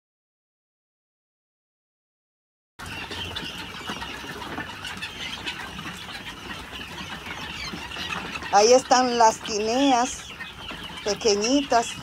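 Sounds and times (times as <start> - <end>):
chicks peeping and chirping: 2.8 - 12.0.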